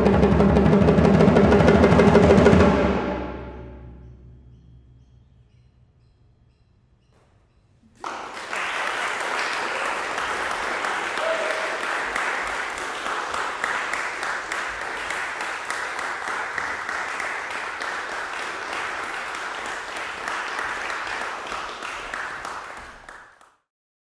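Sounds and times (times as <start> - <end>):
audience applauding: 8.0 - 23.6.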